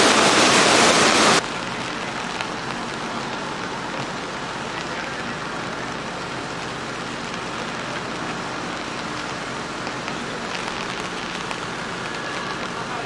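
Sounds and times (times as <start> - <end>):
low engine hum: 0.0 - 13.0
rain on wet pavement: 0.0 - 13.0.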